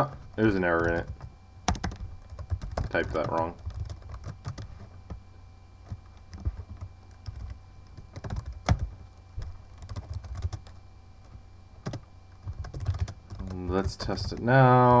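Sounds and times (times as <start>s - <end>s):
computer keyboard typing: 0.0s - 5.2s, 5.8s - 14.5s
low steady hum: 0.0s - 15.0s.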